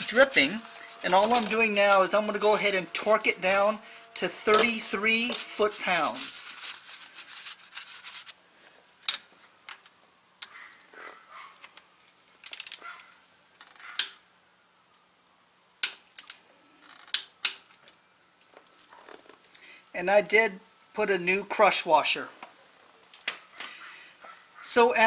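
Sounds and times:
rag rubbing: 0.0s - 8.4s
ratchet wrench clicking: 12.4s - 12.8s.

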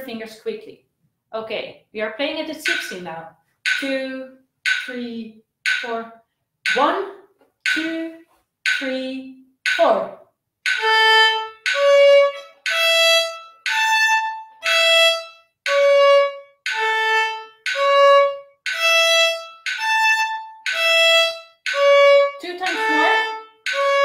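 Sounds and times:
solo violin arpeggio: 10.8s - 24.0s.

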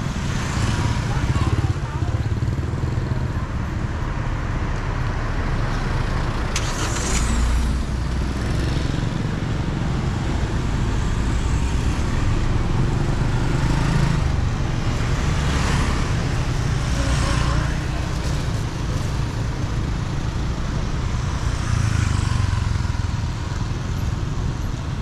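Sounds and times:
vehicle engines passing: 0.0s - 25.0s.

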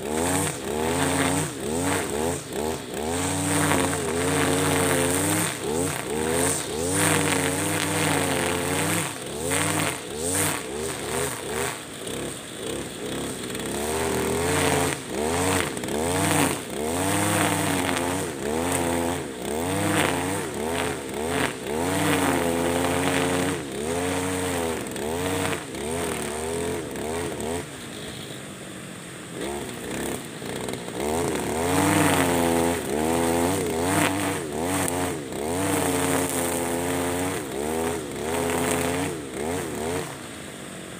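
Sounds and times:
trimmer line ticking: 0.0s - 27.6s, 29.4s - 40.1s
brushcutter revving: 0.0s - 28.2s, 29.2s - 40.9s.

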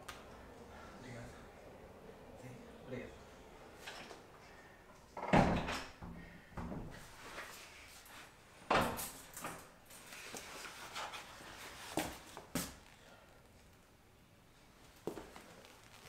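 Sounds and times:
paper rustling: 15.2s - 16.0s.

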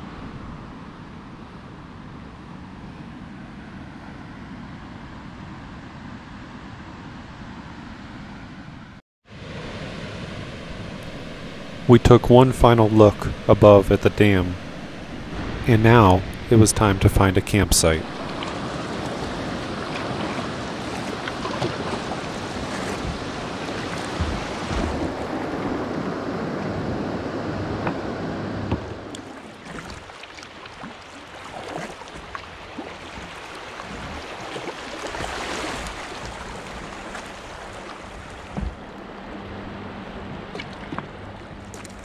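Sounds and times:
river water: 0.0s - 42.0s
water rushing: 9.3s - 42.0s
small knocks and splashes: 18.2s - 25.3s, 29.1s - 39.0s, 40.5s - 42.0s.

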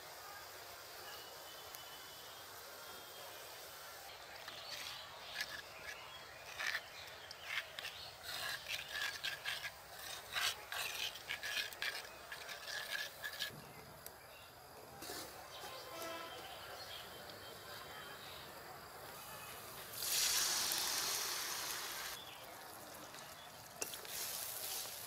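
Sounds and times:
metal spoon scraping clay bowl: 4.4s - 13.6s.

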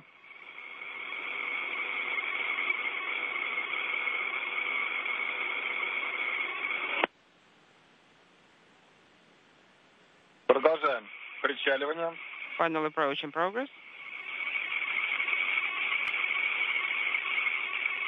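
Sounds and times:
radio static hiss with whistle: 0.0s - 7.1s, 10.4s - 18.0s.

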